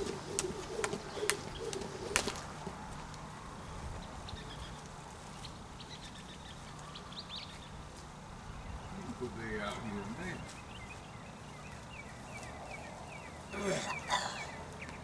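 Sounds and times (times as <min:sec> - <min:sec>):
jump rope slapping dirt: 0:00.0 - 0:03.2.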